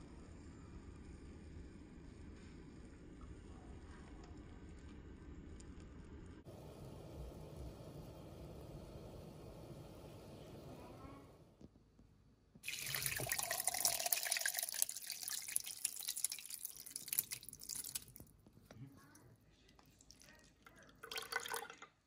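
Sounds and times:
liquid trickling and dripping: 0:12.6 - 0:18.4, 0:19.7 - 0:22.0
whey splashing into a pot: 0:12.6 - 0:18.4, 0:19.9 - 0:22.0.

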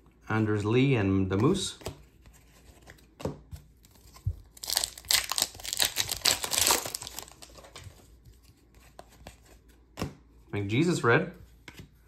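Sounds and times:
foil wrapper tearing and crinkling: 0:04.5 - 0:07.8.

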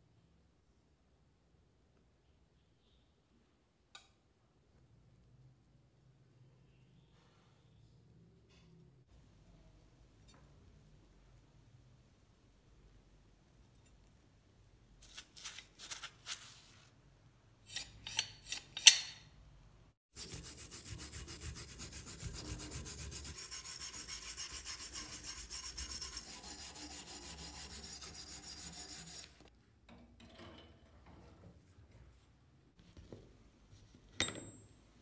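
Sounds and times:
wire brush scrubbing metal: 0:20.2 - 0:29.4.

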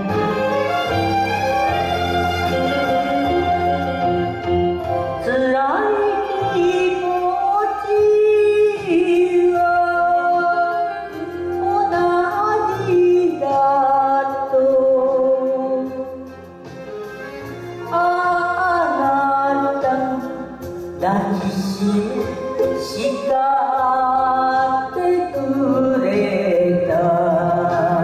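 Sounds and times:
instrumental accompaniment: 0:00.0 - 0:28.0
woman singing into a microphone: 0:05.2 - 0:16.3, 0:17.9 - 0:28.0.

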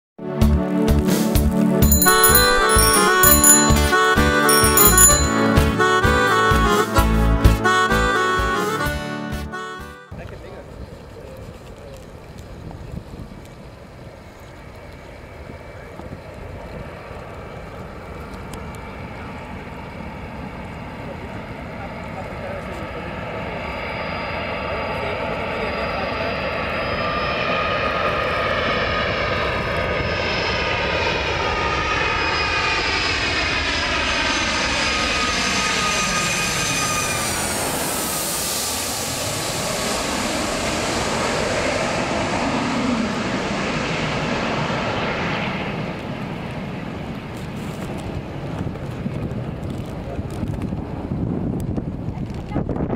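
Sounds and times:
jet engines roaring overhead: 0:13.6 - 0:52.5.

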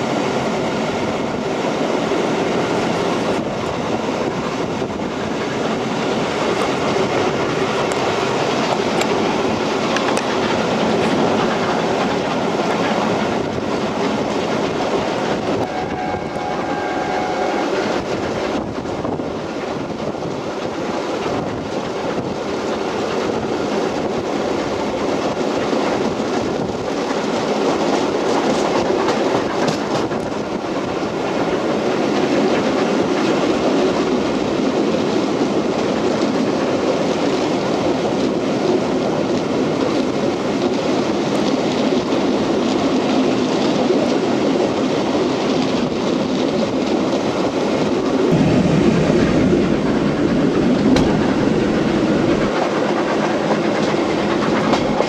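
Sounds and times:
train wheels on rails: 0:00.0 - 0:55.0
steam locomotive exhaust: 0:15.0 - 0:19.0, 0:48.3 - 0:55.0
steady tone: 0:15.6 - 0:18.1, 0:48.3 - 0:52.9
air rushing past: 0:48.3 - 0:55.0.

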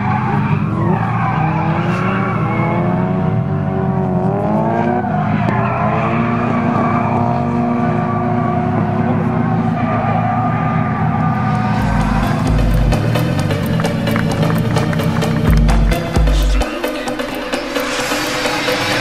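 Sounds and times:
tyre squeal and skid: 0:00.0 - 0:03.8, 0:04.6 - 0:12.4
car engine revving: 0:00.0 - 0:19.0.

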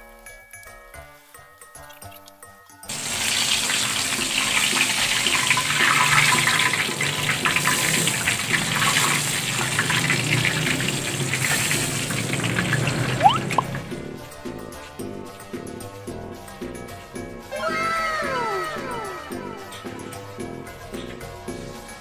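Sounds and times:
fish deep-frying in hot oil: 0:02.9 - 0:14.0.

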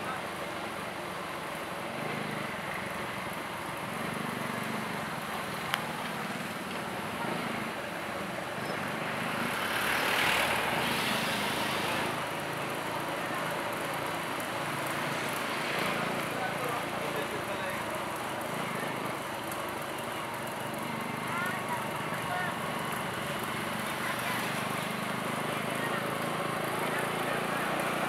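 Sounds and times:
engine hum: 0:00.0 - 0:28.0
road noise: 0:00.0 - 0:28.0.

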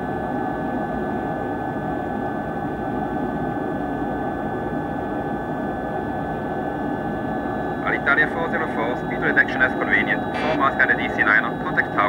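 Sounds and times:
airliner cockpit hiss and rumble: 0:05.2 - 0:12.0.

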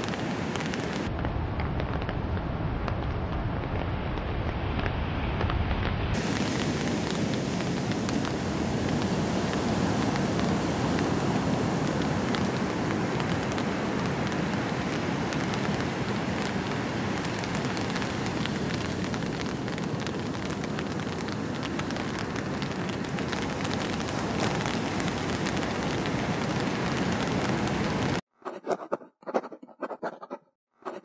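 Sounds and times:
breaking surf roar: 0:04.8 - 0:28.2
foam fizzing: 0:06.2 - 0:12.2.

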